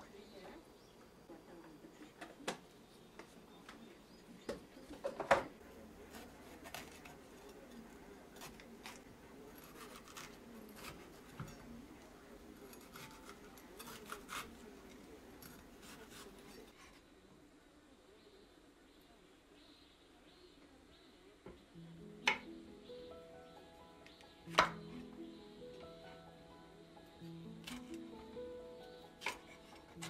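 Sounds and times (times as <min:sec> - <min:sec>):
knife slicing peppers: 0:06.0 - 0:11.8, 0:12.5 - 0:16.9, 0:27.6 - 0:28.2, 0:29.2 - 0:30.0
knife tapping wooden board: 0:22.2 - 0:22.5.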